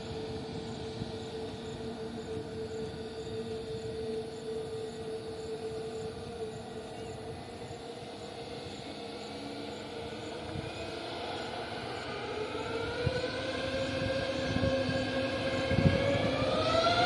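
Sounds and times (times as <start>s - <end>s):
jet engines whining: 0.0s - 17.0s.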